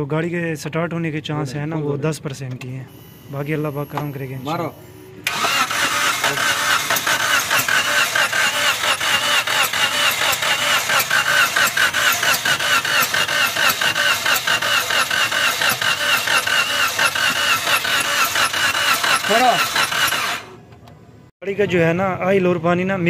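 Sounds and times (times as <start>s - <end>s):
starter motor cranking engine: 5.2s - 20.6s.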